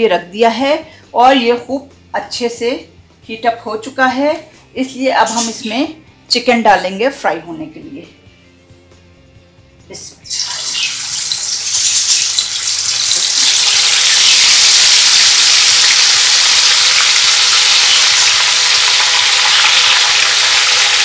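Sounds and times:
chicken sizzling in hot oil: 10.3s - 21.0s.

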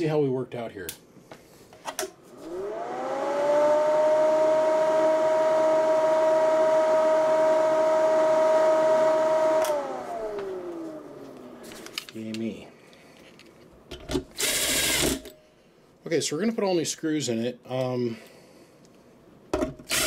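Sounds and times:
cooling fan whirring: 2.3s - 13.0s.

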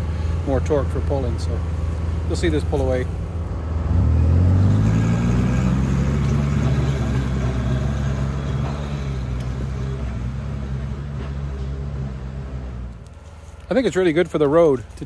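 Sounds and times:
atv engine pulling away: 3.4s - 13.1s.

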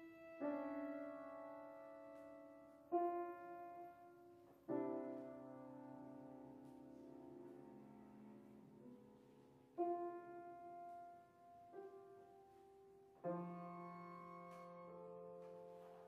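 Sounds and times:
piano chords ringing: 0.0s - 16.0s
cello held tones: 13.2s - 16.0s.

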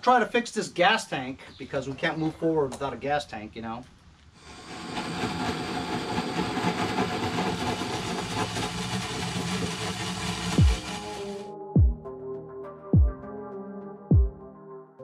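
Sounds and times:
cordless drill drilling into plastic: 4.4s - 11.5s.

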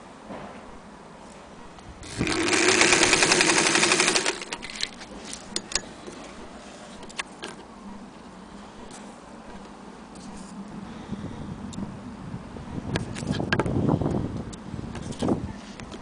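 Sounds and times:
sewing machine running: 2.0s - 4.8s.

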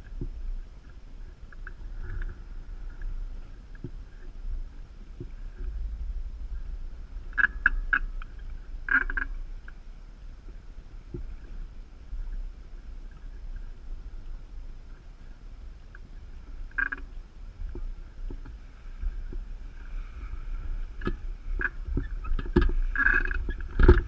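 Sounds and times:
wind buffeting camera: 0.0s - 24.0s
squeaky creaks: 7.2s - 9.8s, 16.7s - 17.2s, 19.2s - 24.0s.

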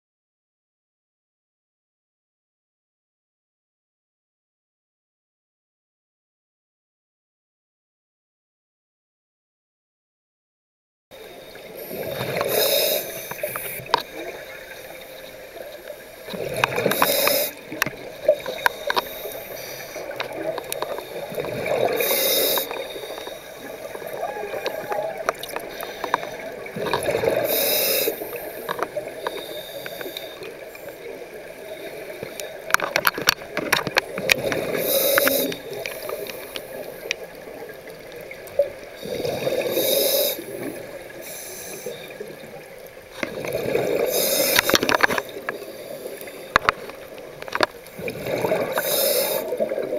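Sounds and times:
small clicks and crackles: 11.2s - 39.0s, 40.3s - 49.9s
exhaled bubbles gurgling underwater: 11.2s - 49.9s.

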